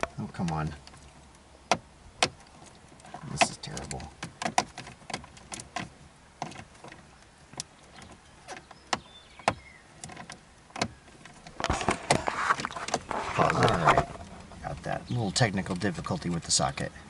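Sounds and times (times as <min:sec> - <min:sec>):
tool clattering and rattling: 0:10.1 - 0:14.6.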